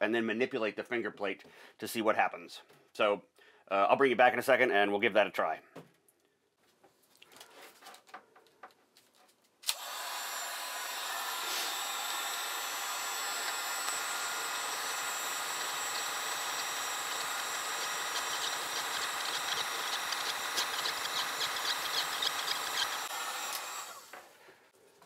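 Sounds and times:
heat gun blowing: 9.6 - 24.5.

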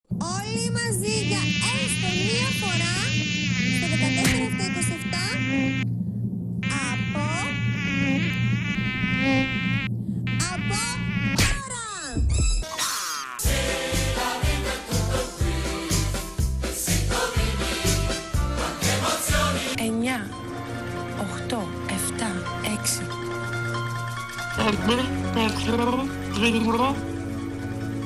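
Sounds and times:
steady low hum: 0.1 - 11.4
electronically altered voice chatter: 0.4 - 5.8, 6.6 - 8.6, 10.4 - 11.2.

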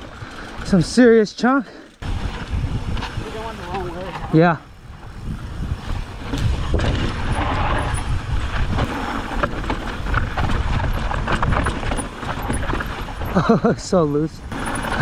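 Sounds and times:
bike tyres crunching on dirt: 0.0 - 15.0
wind rumble on microphone: 2.0 - 13.7
bike knocks and rattles: 5.2 - 15.0.

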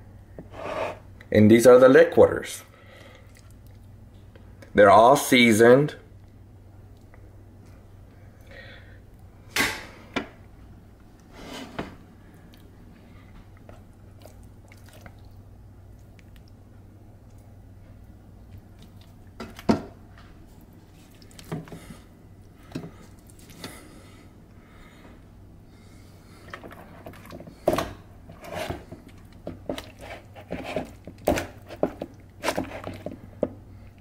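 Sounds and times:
low steady hum: 0.0 - 34.0
wet slaps and scrapes of chicken: 14.2 - 15.3.

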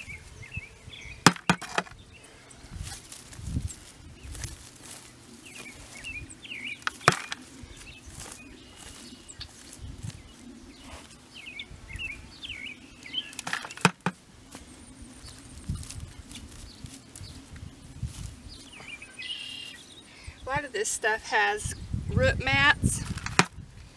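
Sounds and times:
small birds chirping: 0.0 - 22.0
hand cultivator scraping soil: 6.7 - 11.2, 13.2 - 17.6.

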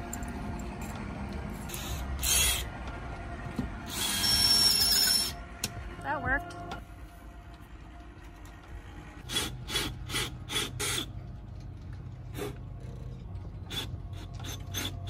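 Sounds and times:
drill motor hum: 1.6 - 2.9, 3.8 - 5.4, 13.6 - 15.0.

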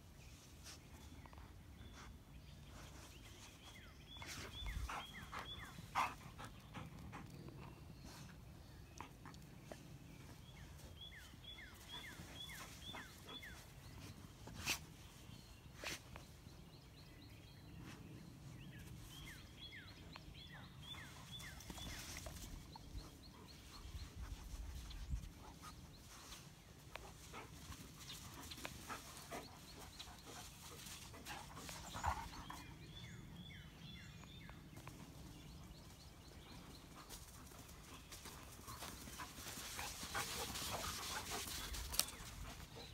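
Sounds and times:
dogs digging in dry dirt: 0.1 - 16.7, 17.3 - 33.5, 34.2 - 42.9
dogs panting: 4.2 - 10.9, 26.8 - 33.0, 35.3 - 42.9.

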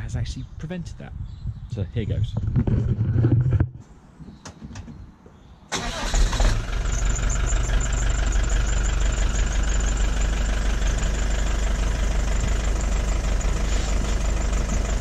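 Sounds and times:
diesel engine starting and idling: 5.7 - 15.0.

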